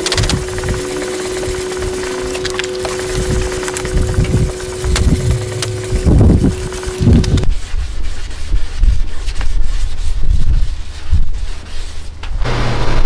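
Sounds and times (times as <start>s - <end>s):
steady hum: 0.0s - 7.6s, 12.4s - 13.0s
wind buffeting microphone: 3.1s - 7.6s
sandpaper rubbing on plastic: 4.4s - 13.0s.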